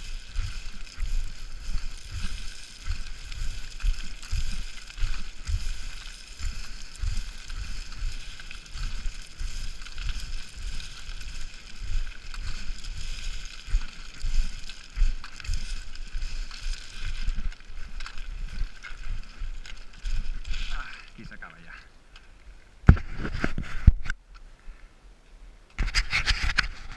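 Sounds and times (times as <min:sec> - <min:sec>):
heavy footfalls on scree: 0:00.0 - 0:20.8
stones crunching and sliding: 0:00.0 - 0:23.9.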